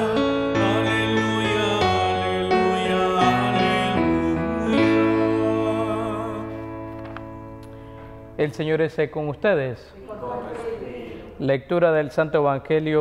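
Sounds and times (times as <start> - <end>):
person singing gospel: 0.0 - 7.6
instrumental accompaniment: 0.0 - 8.7.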